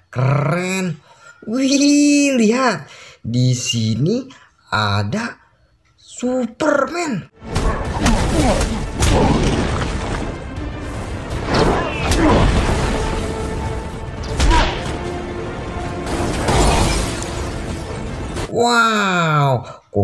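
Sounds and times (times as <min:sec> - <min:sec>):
dramatic film music: 0:07.3 - 0:18.6
heavy booms and crashes: 0:07.4 - 0:18.5.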